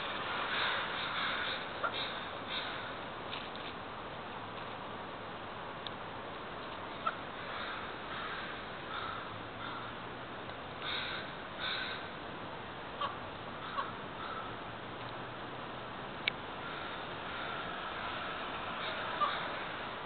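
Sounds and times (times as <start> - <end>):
steady background noise: 0.0 - 20.0
crows cawing: 0.4 - 3.0, 7.0 - 10.0, 10.8 - 12.1, 13.0 - 14.6, 16.6 - 19.8.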